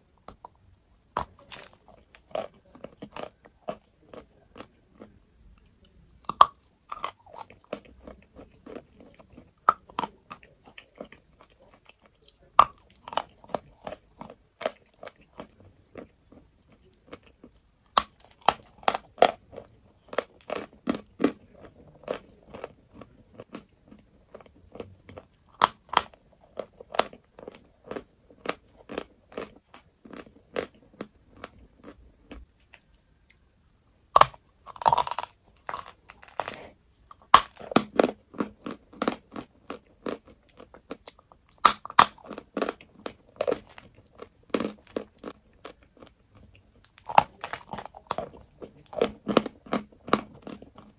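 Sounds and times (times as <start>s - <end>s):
chalk crunching between teeth: 34.2s - 44.0s.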